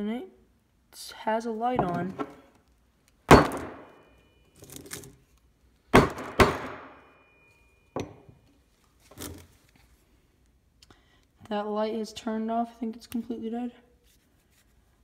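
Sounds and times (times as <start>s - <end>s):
hammer striking a phone: 3.3s - 4.1s, 6.0s - 7.1s.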